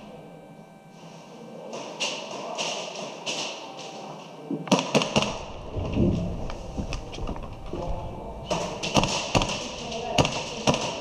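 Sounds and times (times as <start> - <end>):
low rumble of gear handling: 5.3 - 8.8.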